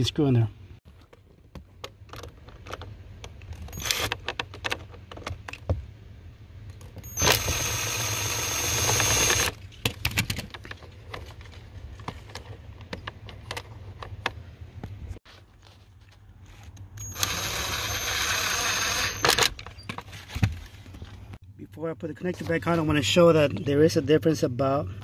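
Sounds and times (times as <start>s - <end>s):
cordless drill driving screw: 3.7s - 4.2s, 7.0s - 9.6s, 17.0s - 19.5s.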